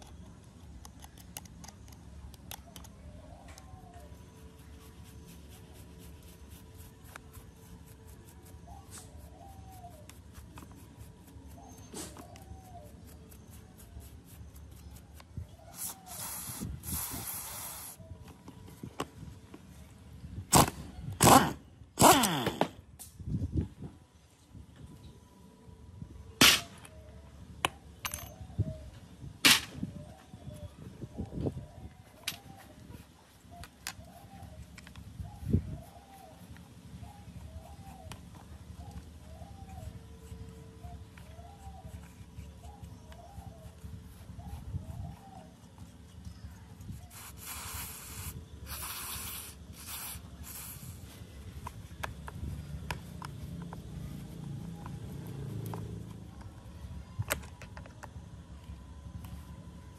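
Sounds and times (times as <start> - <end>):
aerosol spray can hissing: 15.7 - 18.0, 47.1 - 51.0.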